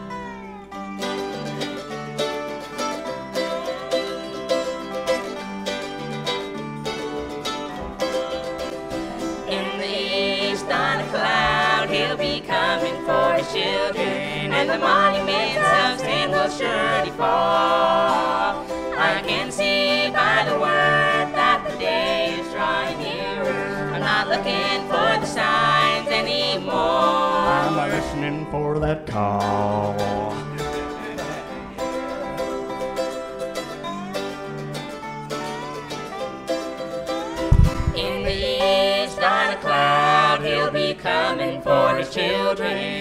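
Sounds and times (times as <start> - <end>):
bluegrass band playing: 0.0 - 43.0
voices singing together: 9.1 - 31.6, 37.5 - 43.0.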